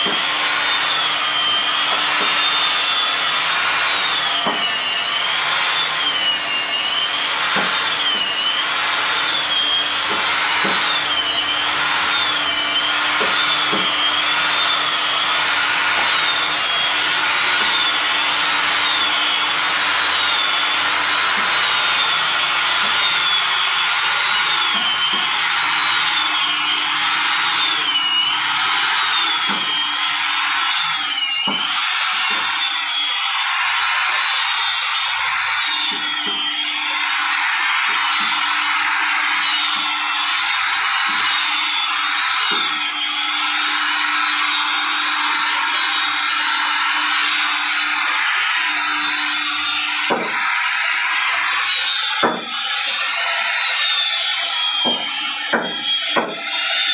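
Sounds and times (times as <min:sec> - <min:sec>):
woodworking machine motor whine: 0:00.0 - 0:56.9.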